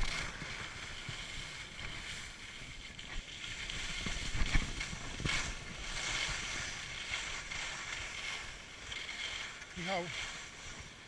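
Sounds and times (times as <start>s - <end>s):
wind buffeting microphone: 0.0s - 8.8s
skis scraping on snow: 0.0s - 11.0s.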